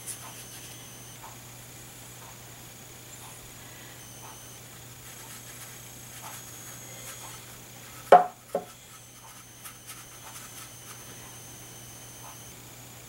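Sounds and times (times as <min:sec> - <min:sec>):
sharp knocks: 0:08.1 - 0:08.7.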